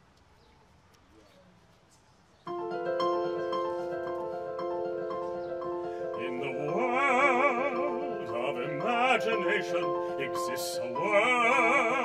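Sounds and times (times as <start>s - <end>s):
orchestral accompaniment held chords: 2.5s - 12.0s
opera singer with vibrato: 6.2s - 12.0s.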